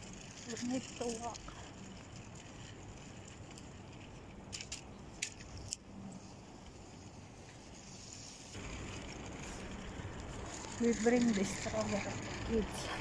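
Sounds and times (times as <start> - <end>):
low hum: 0.0 - 13.0
outdoor background noise: 0.0 - 13.0
sharp clicks and jingles: 6.8 - 13.0.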